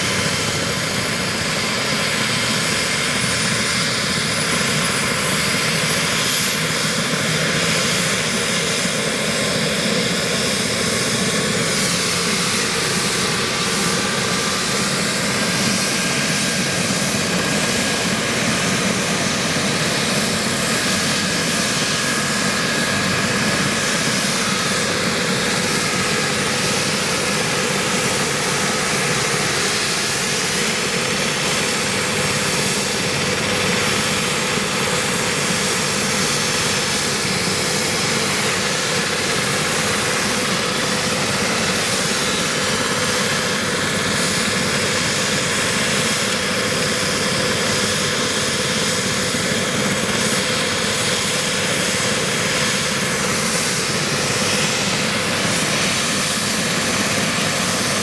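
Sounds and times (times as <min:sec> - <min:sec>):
helicopter rotors rushing: 0:00.0 - 0:58.0
helicopter turbines whining: 0:00.0 - 0:58.0.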